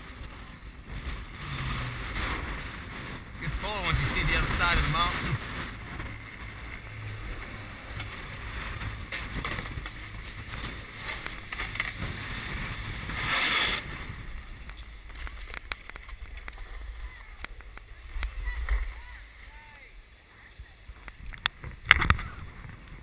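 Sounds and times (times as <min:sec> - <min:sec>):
snowboards scraping on snow: 0:00.0 - 0:14.6
wind rumbling on microphone: 0:00.0 - 0:23.0.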